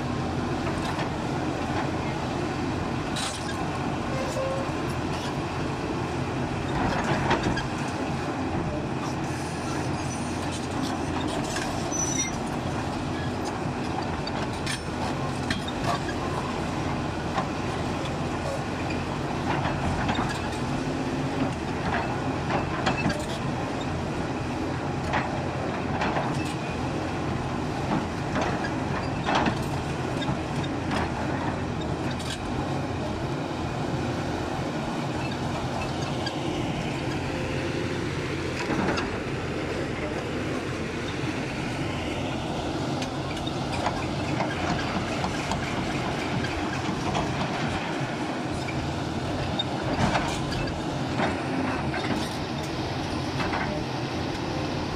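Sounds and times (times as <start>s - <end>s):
excavator diesel engine running: 0.0s - 54.9s.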